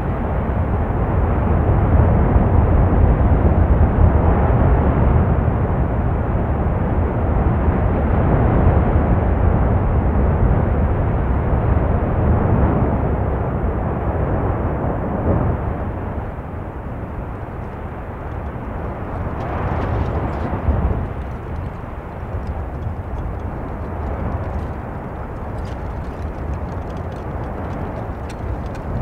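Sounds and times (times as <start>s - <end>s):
deep roar of lava fountains: 0.0s - 29.0s
sharp crackles: 16.5s - 29.0s.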